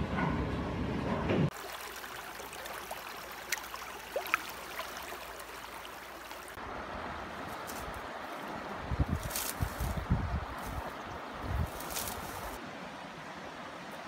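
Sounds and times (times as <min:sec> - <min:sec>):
high water plinks: 0:01.5 - 0:06.6
stream water rushing over rocks: 0:01.5 - 0:14.0.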